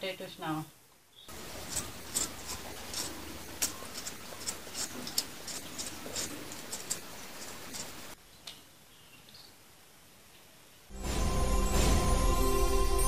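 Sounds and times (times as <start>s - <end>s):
peeler scraping potato: 1.3s - 8.2s.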